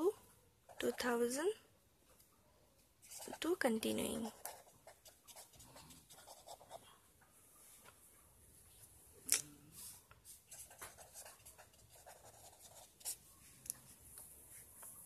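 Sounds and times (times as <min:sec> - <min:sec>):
pen scratching on paper: 0:03.0 - 0:06.8, 0:09.8 - 0:13.3.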